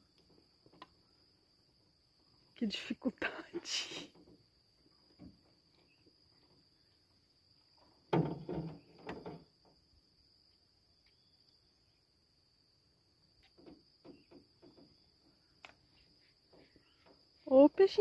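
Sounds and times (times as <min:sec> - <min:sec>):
insects trilling: 0:00.0 - 0:18.0
knocking and rattling: 0:08.1 - 0:09.4.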